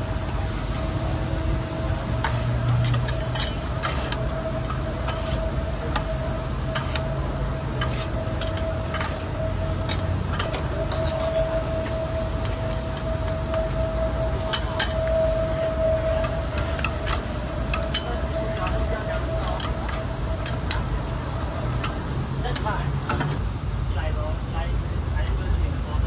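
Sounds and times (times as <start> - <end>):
corn kernels sizzling: 0.0 - 24.2
steady hum: 0.0 - 26.0
metal spatulas scraping on griddle: 2.1 - 21.0, 21.6 - 23.4.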